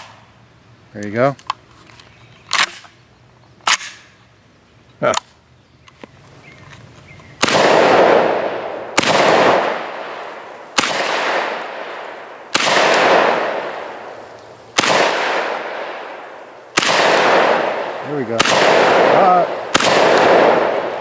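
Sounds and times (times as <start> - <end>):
shotgun shots echoing: 3.7 - 4.1, 7.4 - 14.2, 14.8 - 21.0.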